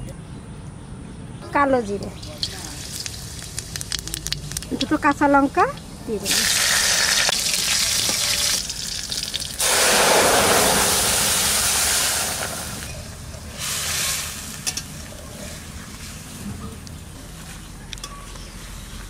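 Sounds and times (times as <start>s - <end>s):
seeds and chillies sizzling in oil: 1.9s - 16.4s.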